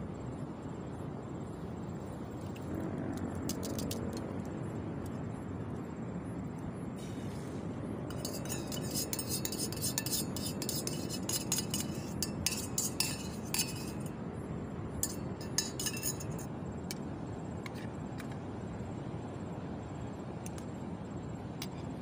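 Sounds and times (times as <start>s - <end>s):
metal spoon clinking on metal cup: 8.1s - 14.1s, 15.0s - 16.5s.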